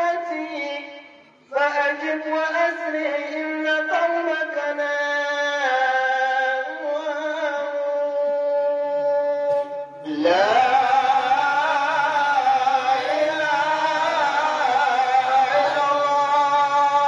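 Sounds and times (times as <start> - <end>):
lead male voice chanting: 9.5 - 17.0
chorus of men chanting: 10.1 - 17.0.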